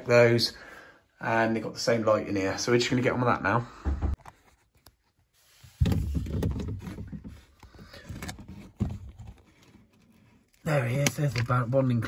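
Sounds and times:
handling noise in cupboard: 5.5s - 10.2s.

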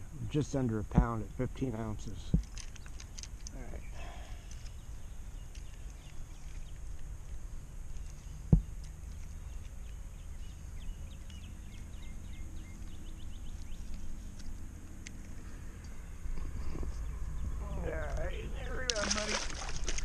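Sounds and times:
small birds chirping: 1.0s - 20.0s
wind rumble on microphone: 15.8s - 19.0s.

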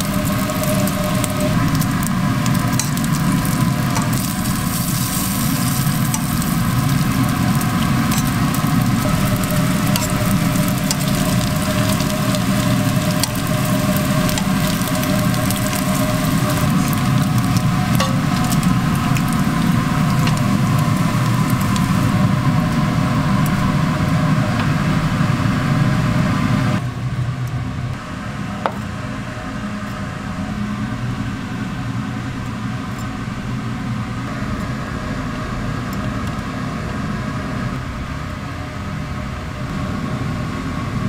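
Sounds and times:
bacon sizzling on griddle: 0.0s - 24.2s
low mechanical hum: 0.0s - 41.0s.

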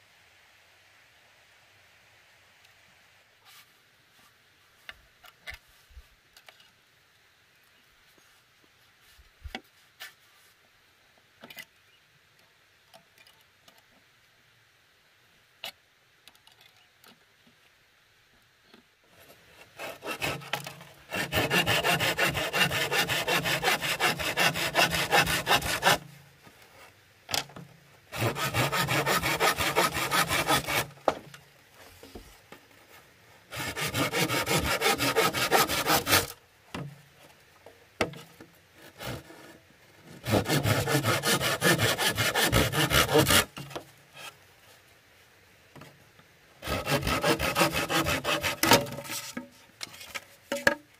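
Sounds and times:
hand saw cutting bamboo: 19.2s - 26.1s, 27.3s - 31.3s, 33.5s - 36.9s, 38.8s - 44.3s, 46.6s - 50.7s.

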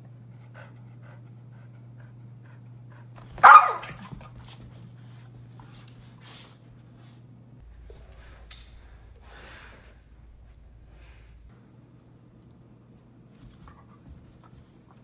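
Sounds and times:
steady low hum: 0.0s - 15.0s
dog barking: 3.4s - 4.1s.

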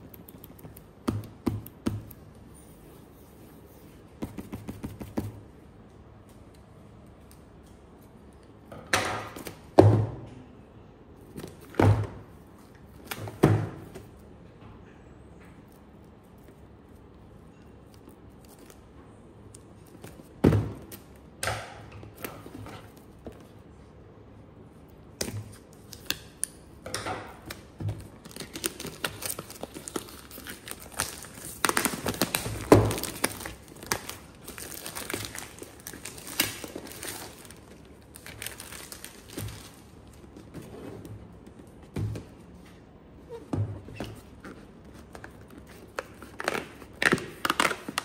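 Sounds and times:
plastic wrap crinkling: 27.4s - 40.6s, 44.3s - 48.0s.

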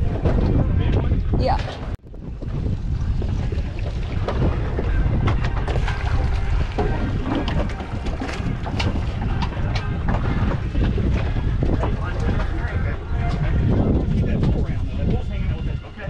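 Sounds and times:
wind buffeting microphone: 0.0s - 16.0s
fish splashing in water: 3.2s - 9.5s.

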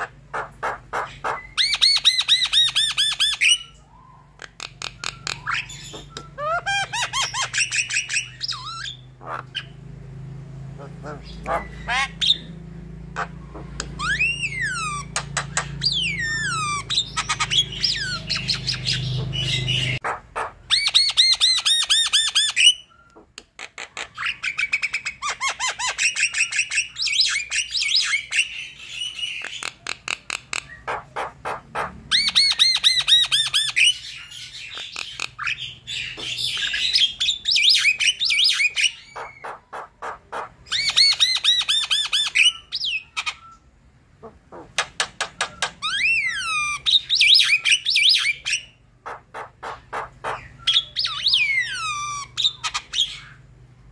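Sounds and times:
bird chattering and whistling: 0.0s - 9.8s, 10.8s - 53.5s
low background hum: 0.0s - 53.9s.

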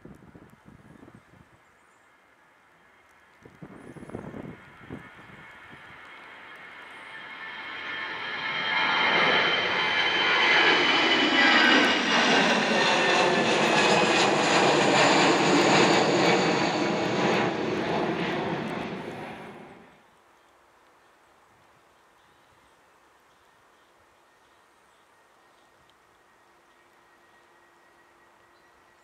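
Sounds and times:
jet engines roaring overhead: 4.2s - 20.0s.

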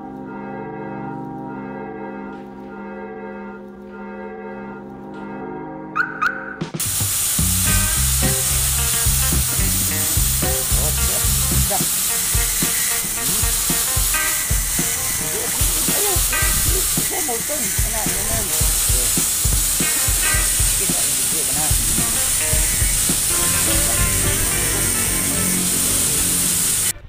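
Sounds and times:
bell-like chord: 0.0s - 6.0s
pulsing bass beat: 6.7s - 26.9s
loud steady hiss: 6.8s - 27.0s.

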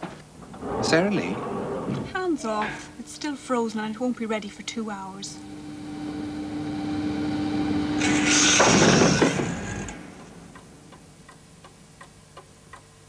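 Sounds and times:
held low note: 0.6s - 10.6s
wall clock ticking: 10.2s - 13.0s.

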